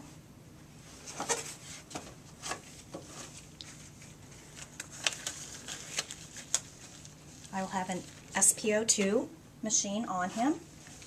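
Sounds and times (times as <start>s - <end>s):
faint room hum: 0.0s - 11.0s
hands handling plastic supplies: 1.1s - 9.1s.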